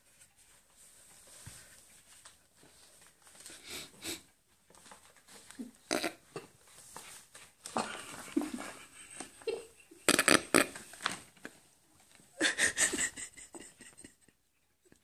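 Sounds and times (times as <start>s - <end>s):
paper bag rustling: 10.7s - 12.2s.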